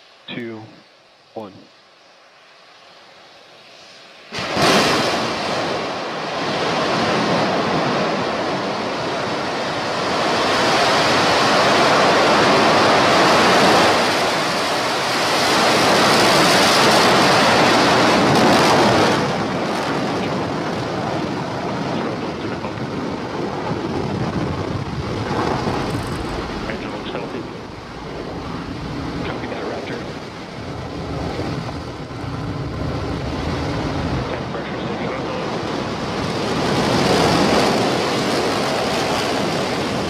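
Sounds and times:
rocket engine firing: 4.3s - 40.0s.

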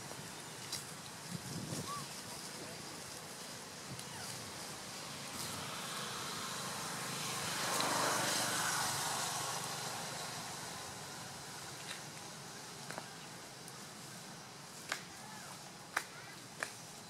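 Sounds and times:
vehicle passing by: 4.5s - 11.8s.

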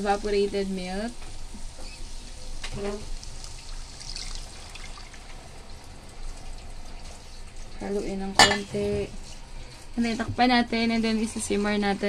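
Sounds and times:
milk pouring into a frying pan: 1.3s - 7.8s.

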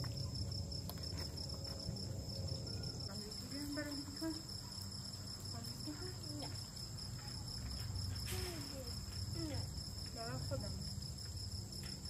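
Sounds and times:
crickets trilling: 0.0s - 12.0s
people talking quietly: 2.7s - 11.0s.

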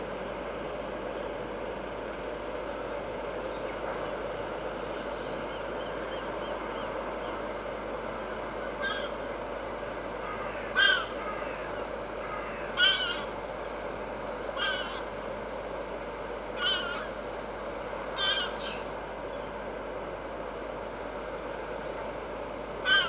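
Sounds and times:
steady background noise: 0.0s - 23.0s.

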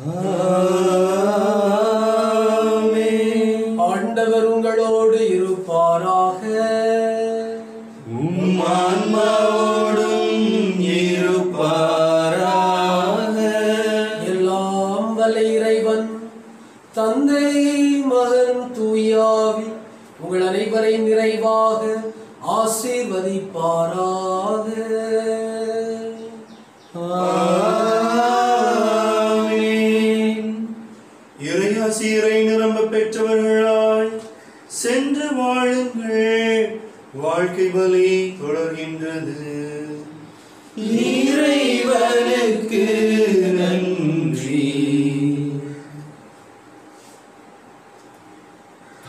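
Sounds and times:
priest chanting: 0.0s - 16.3s.

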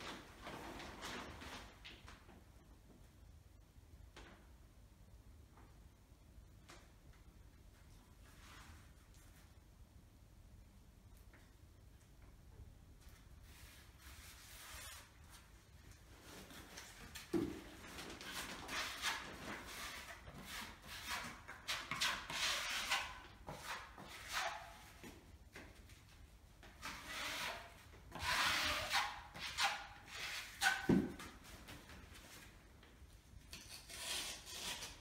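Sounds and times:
putty knife scraping wall: 16.7s - 25.0s, 26.8s - 31.4s, 33.5s - 35.0s.

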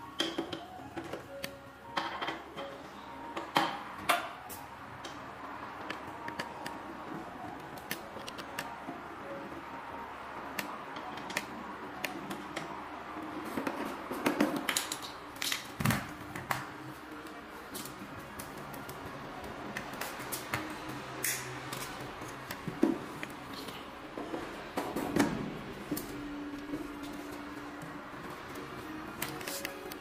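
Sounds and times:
clicks and knocks of handling parts: 13.5s - 19.0s.

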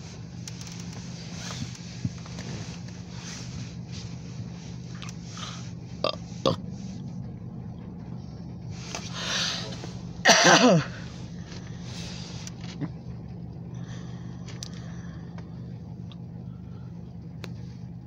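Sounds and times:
car engine idling: 0.0s - 18.0s
rain pattering on car roof: 0.3s - 5.1s
person making throaty noises: 5.4s - 6.6s.

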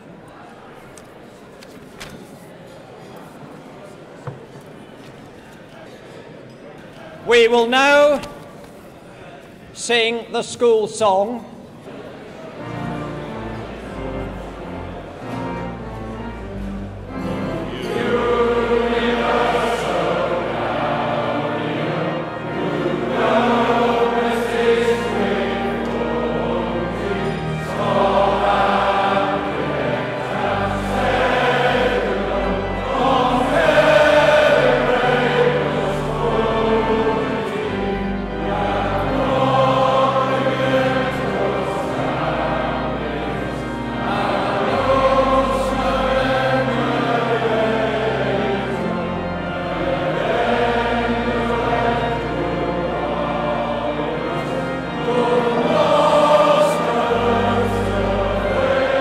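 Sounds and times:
instrumental accompaniment: 12.6s - 59.0s
group of voices singing: 17.2s - 59.0s.

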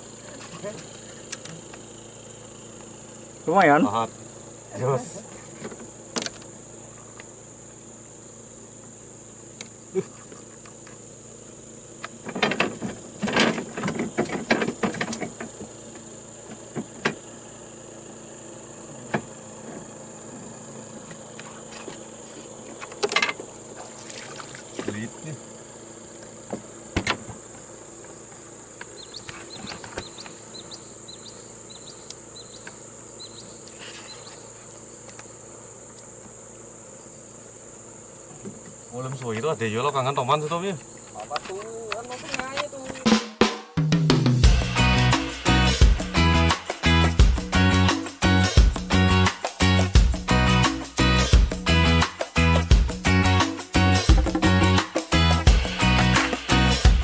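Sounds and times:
high-pitched insect drone: 0.0s - 43.4s, 44.3s - 57.0s
light evenly spaced ticks: 0.2s - 4.4s, 27.5s - 39.6s.

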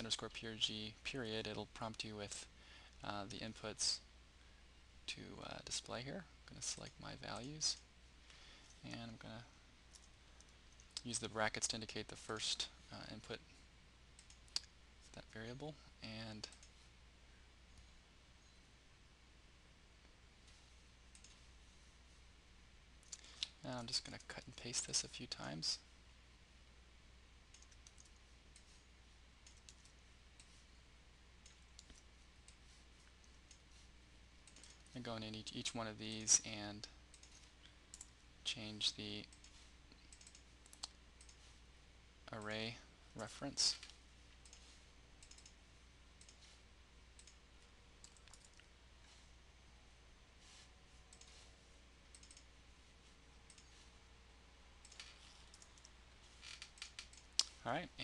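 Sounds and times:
steady low hum: 0.0s - 58.0s
faint computer mouse clicks: 52.1s - 52.5s.

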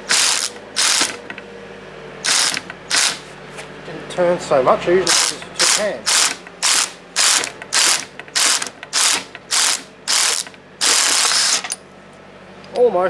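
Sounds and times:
impact wrench hammering: 0.0s - 1.4s, 2.2s - 3.3s, 5.1s - 11.8s.

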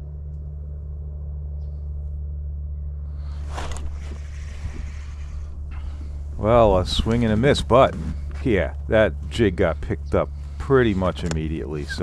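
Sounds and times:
steady low rumble: 0.0s - 12.0s
light clicks: 11.0s - 12.0s.

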